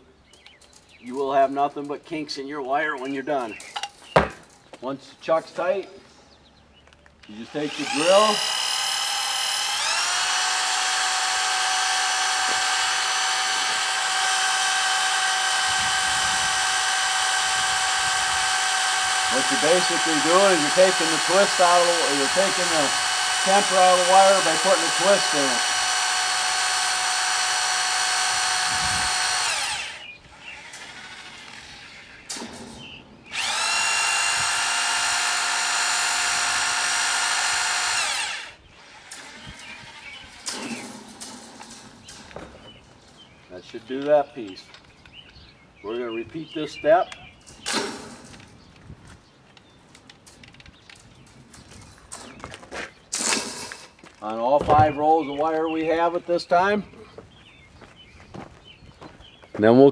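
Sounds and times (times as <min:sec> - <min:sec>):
electric drill whining: 0:07.3 - 0:32.5, 0:33.3 - 0:40.8.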